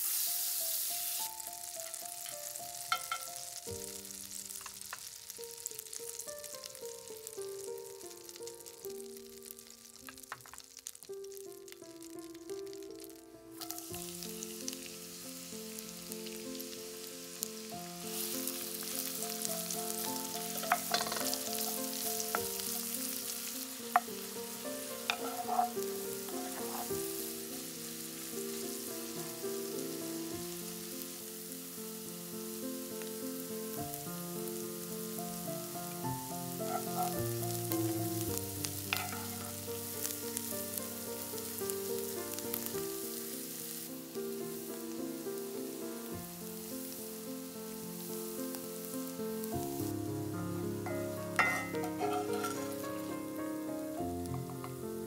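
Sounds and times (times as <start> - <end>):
food sizzling in a pan: 0.0 - 55.0
soft background music: 0.6 - 10.3, 11.3 - 55.0
utensil clicking against pan: 20.5 - 22.5, 25.1 - 26.9.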